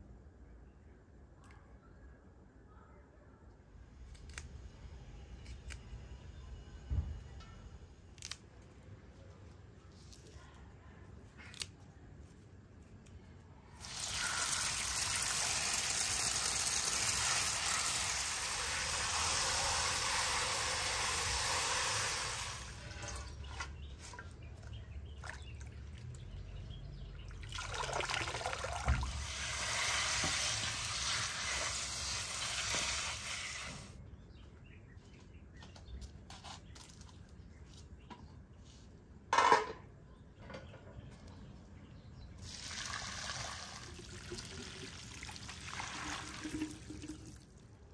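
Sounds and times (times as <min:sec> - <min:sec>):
water running onto herbs in colander: 0:13.8 - 0:24.1, 0:27.4 - 0:33.9, 0:42.4 - 0:47.5.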